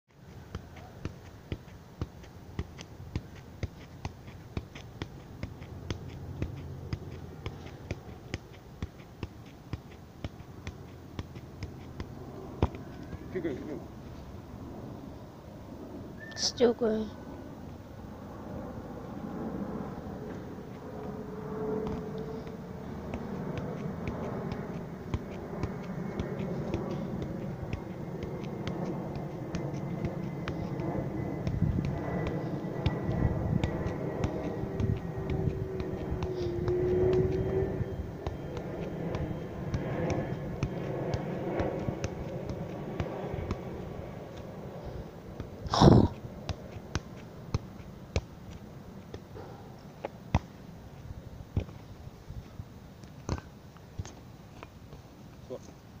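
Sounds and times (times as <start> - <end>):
low background rumble: 0.2 - 54.6
boot thudding on football: 0.5 - 13.3, 21.8 - 37.4.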